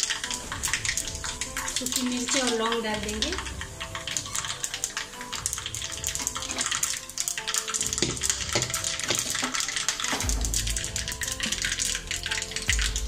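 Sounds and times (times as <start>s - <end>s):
hot oil sizzling in a pan: 0.0s - 13.0s
seeds crackling and popping: 0.0s - 13.0s.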